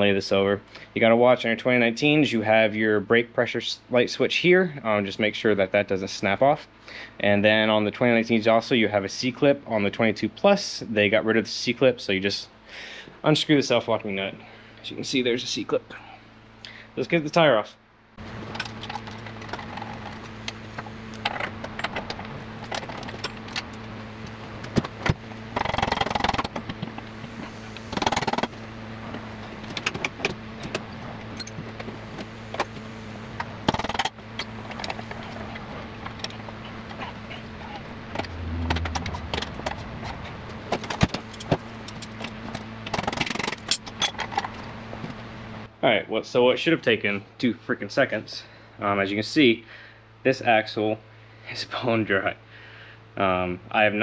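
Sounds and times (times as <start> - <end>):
metal scraping: 37.4 - 40.9.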